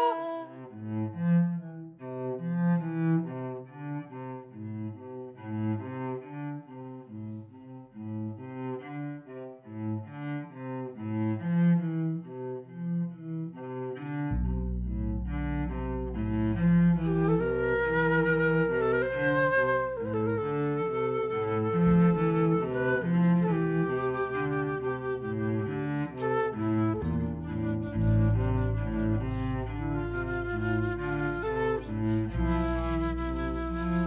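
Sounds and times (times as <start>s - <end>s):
slow melody of low notes: 11.1s - 34.0s
steady low drone: 26.6s - 34.0s.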